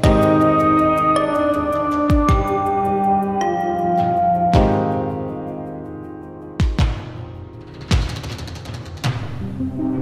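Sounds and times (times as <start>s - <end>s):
light ticking beat: 0.0s - 8.8s
synthesizer chords: 9.2s - 10.0s.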